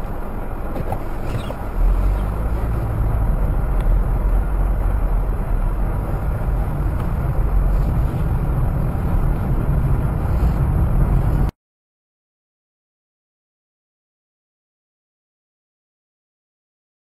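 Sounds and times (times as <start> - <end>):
car road and engine rumble: 0.0 - 11.6.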